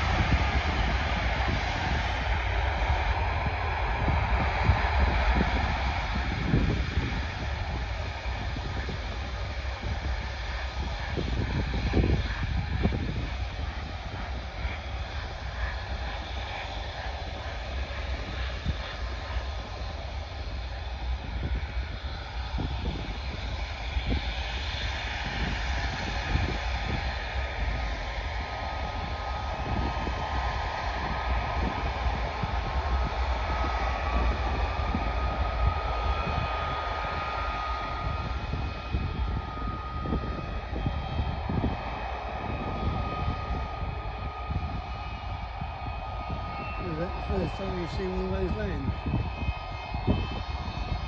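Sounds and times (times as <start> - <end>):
distant jet engines roaring: 0.0 - 51.0
gusty low rumble: 0.0 - 51.0.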